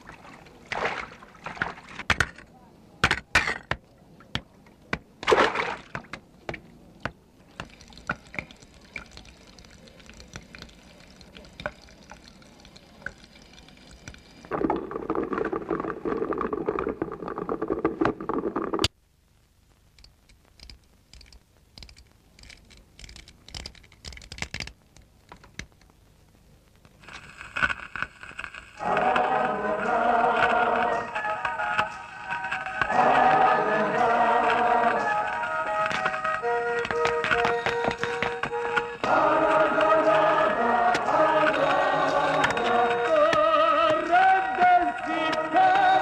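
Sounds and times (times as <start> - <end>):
water pouring from tap: 7.6 - 17.8.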